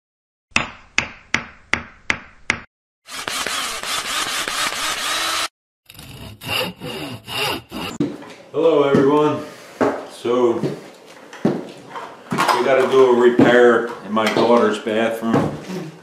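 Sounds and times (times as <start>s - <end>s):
sawing: 3.0s - 8.0s.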